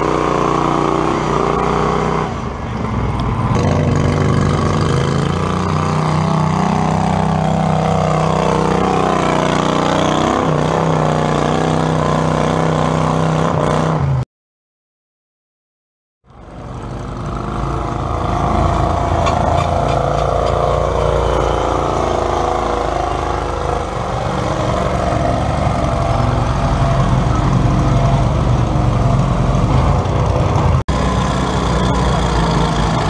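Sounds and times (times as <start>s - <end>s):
garden tractor engine under load: 16.3s - 33.0s.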